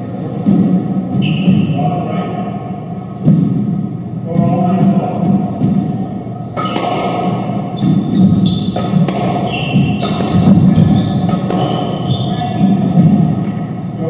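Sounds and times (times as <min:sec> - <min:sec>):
squash ball hits echoing: 0:03.2 - 0:13.7.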